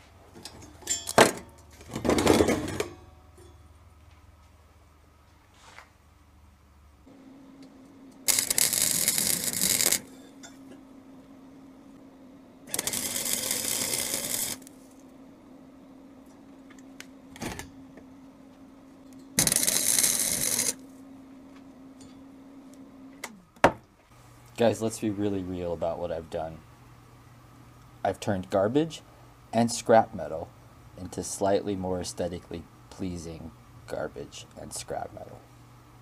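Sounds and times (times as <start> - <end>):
steady hum: 0.0 - 36.0
welder welding: 8.2 - 10.2, 12.6 - 15.0, 19.4 - 20.8.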